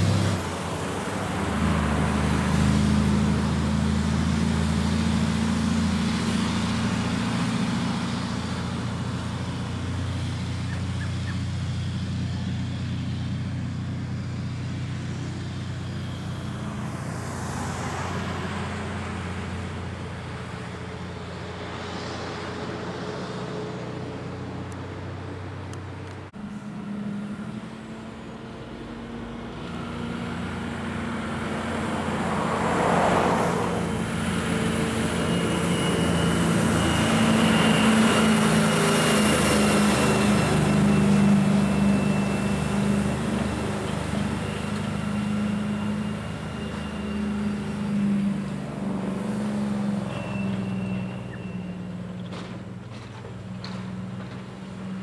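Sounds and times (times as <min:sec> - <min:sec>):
approaching truck engine: 0:00.0 - 0:55.0
truck diesel engine droning: 0:00.0 - 0:55.0.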